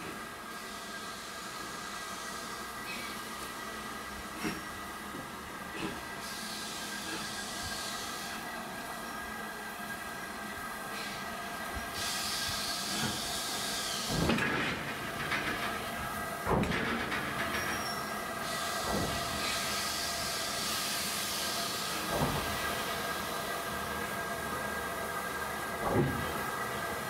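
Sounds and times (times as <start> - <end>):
steam locomotive hissing: 0.0 - 27.0
heavy clunks: 14.1 - 18.1, 18.8 - 19.7, 22.0 - 22.6, 25.8 - 26.4.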